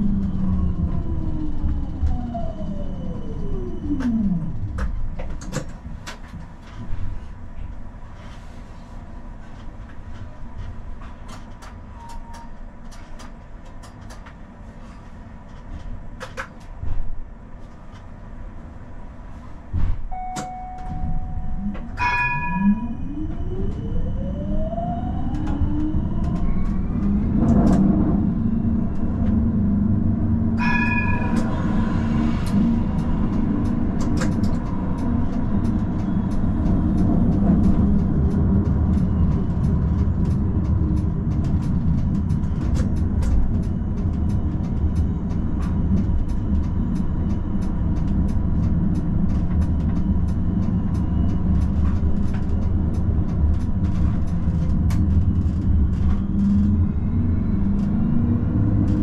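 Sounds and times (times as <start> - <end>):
tram motor whine rising: 0.0 - 5.8, 20.1 - 59.0
tram rumble: 0.0 - 59.0
ringing chime: 20.1 - 23.6
steady beep: 20.1 - 24.7.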